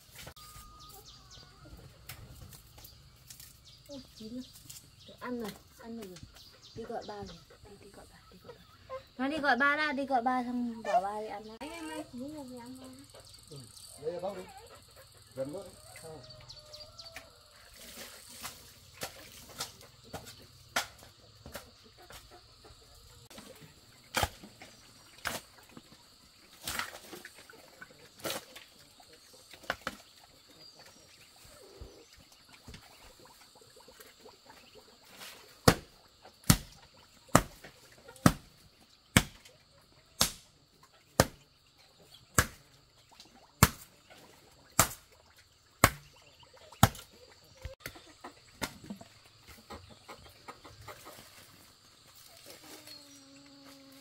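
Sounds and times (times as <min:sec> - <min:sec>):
hoe chopping into soil: 0:24.1 - 0:24.6, 0:35.6 - 0:37.6, 0:39.2 - 0:39.4, 0:45.8 - 0:46.1.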